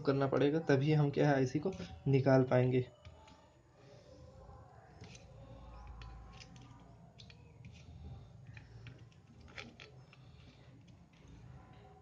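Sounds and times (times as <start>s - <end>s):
tools scratching a circuit board: 5.0s - 11.9s.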